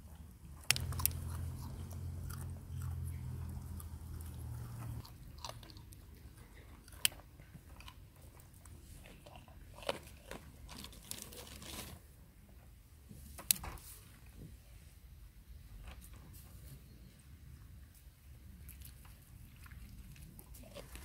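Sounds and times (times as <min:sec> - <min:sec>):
goats crunching carrots: 0:00.1 - 0:12.1, 0:18.5 - 0:21.0.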